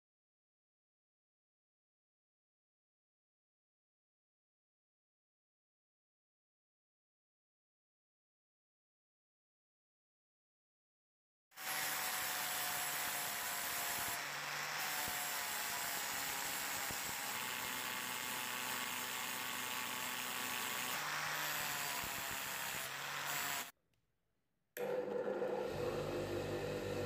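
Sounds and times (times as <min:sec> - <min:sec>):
angle grinder grinding metal: 0:11.6 - 0:23.7, 0:24.8 - 0:27.0.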